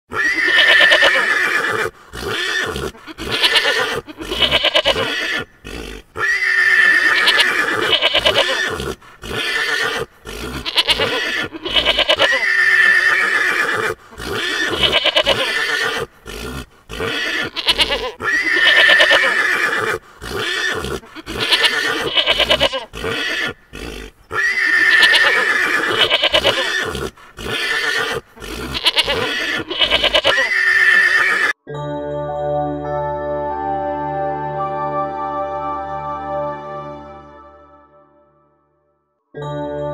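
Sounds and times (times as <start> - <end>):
horses neighing: 0.1 - 31.6.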